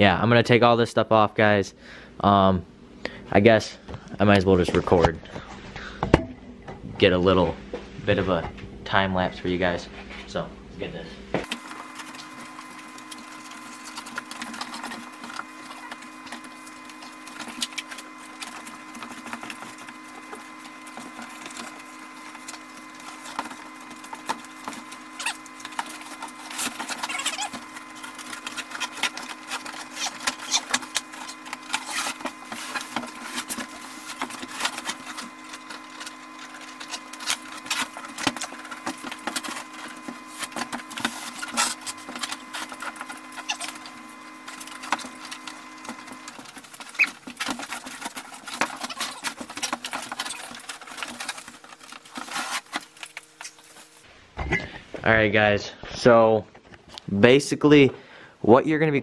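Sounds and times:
steady hum: 0.0 - 59.0
fabric tearing and crackling: 11.5 - 54.0.

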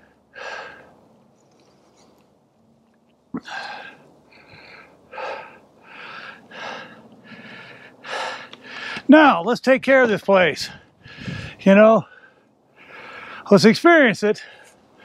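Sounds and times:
man breathing hard: 0.0 - 1.0, 3.4 - 9.1, 10.6 - 13.5, 14.4 - 15.0.

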